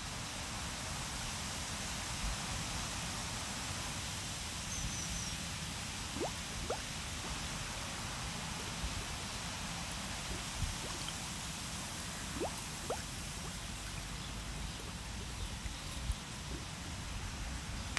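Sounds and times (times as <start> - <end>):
rain hissing on a pond: 0.0 - 17.9
drops plinking into water: 6.2 - 6.8, 10.3 - 11.2, 12.3 - 14.0.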